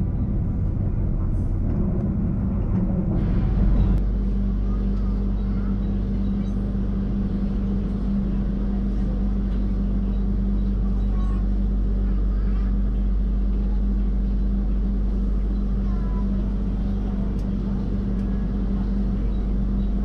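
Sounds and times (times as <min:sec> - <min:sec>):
low hum: 0:00.0 - 0:20.0
train coach running rumble: 0:00.0 - 0:20.0.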